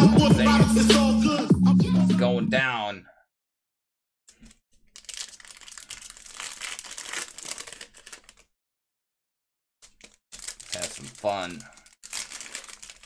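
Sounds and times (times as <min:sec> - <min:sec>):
foil wrapper crinkling: 0:04.3 - 0:08.5, 0:09.8 - 0:13.0.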